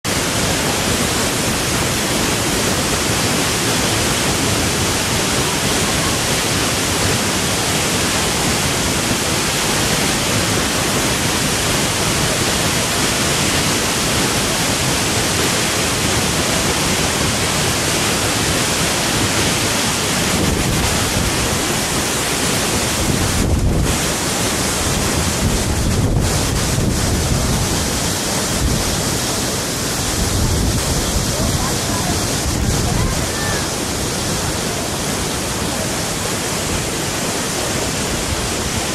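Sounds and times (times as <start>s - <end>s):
waterfall roaring: 0.0s - 38.9s
wind buffeting microphone: 16.2s - 34.6s.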